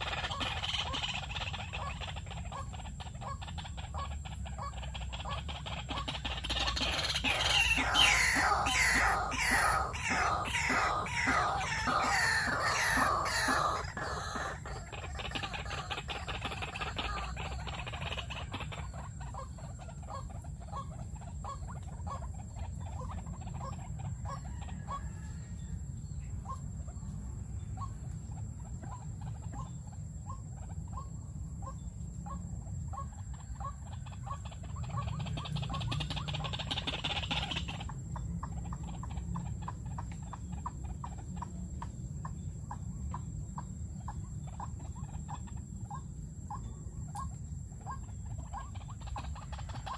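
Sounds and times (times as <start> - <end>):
bird calling repeated notes: 0.0 - 19.6.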